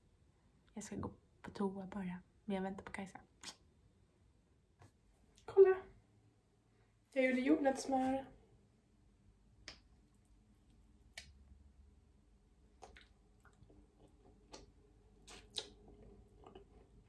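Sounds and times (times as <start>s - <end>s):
mouth smacks eating: 12.7s - 16.9s.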